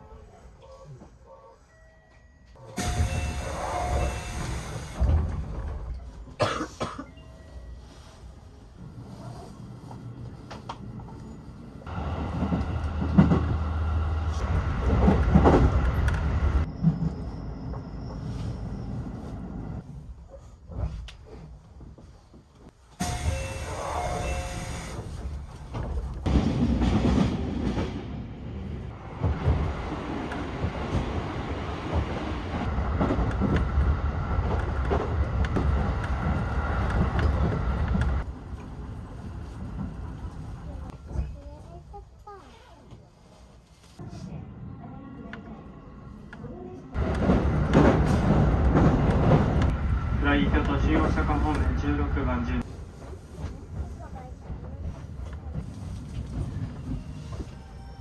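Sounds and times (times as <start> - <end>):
train rumbling inside carriage: 0.0 - 58.0
faint high train whine: 1.7 - 5.3, 22.8 - 26.0
sharp clicks of train: 50.5 - 51.8.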